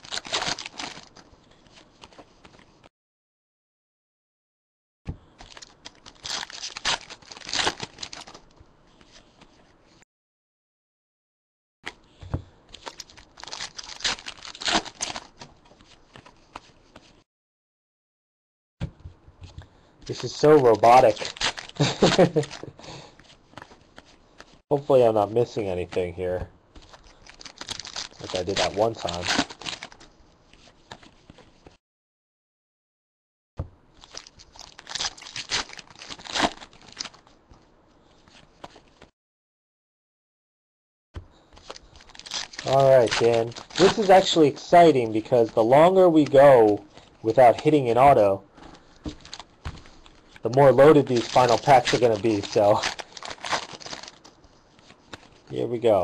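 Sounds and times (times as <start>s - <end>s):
foil pack crinkling: 0.0s - 1.3s, 5.4s - 8.5s, 12.7s - 16.4s, 20.1s - 23.8s, 26.8s - 30.1s, 34.0s - 37.3s, 41.6s - 47.8s, 48.7s - 55.5s
cards being flipped: 49.0s - 55.4s.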